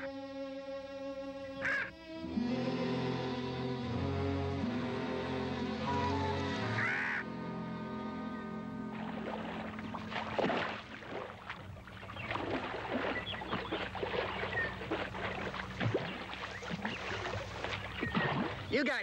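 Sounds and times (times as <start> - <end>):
music: 0.0 - 10.8
water splashing from swimming: 8.9 - 18.8.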